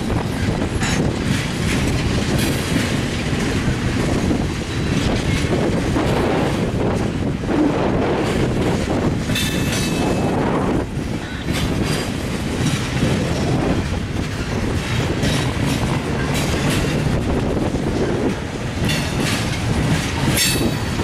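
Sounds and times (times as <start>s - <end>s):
freight train rumbling: 0.0s - 21.0s
wheels clacking over rail joints: 0.0s - 21.0s.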